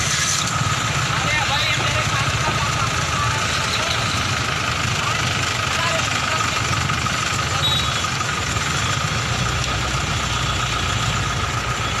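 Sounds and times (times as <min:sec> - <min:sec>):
constant thin whine: 0:00.0 - 0:12.0
engine idling rumble: 0:00.0 - 0:12.0.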